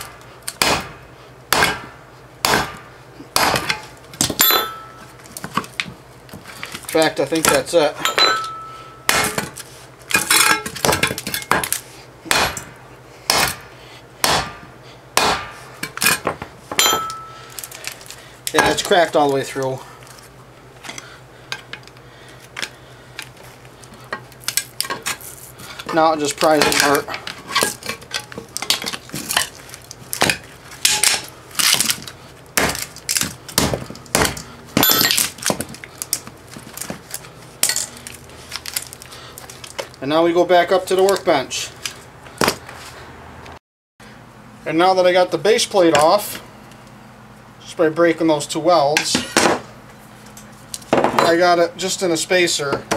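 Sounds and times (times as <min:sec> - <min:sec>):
hammer striking steel: 0:00.0 - 0:05.1, 0:07.5 - 0:09.6, 0:12.3 - 0:13.6, 0:14.2 - 0:17.5.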